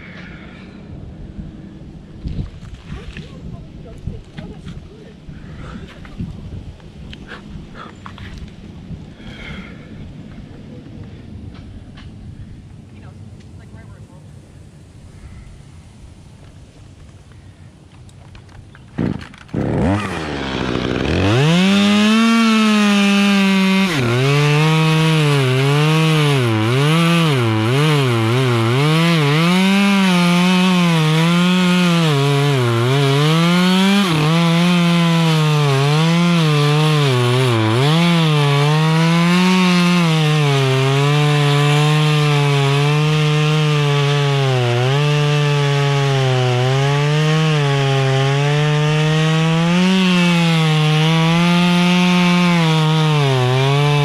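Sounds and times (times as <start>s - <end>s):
chainsaw cutting wood: 18.9s - 54.0s.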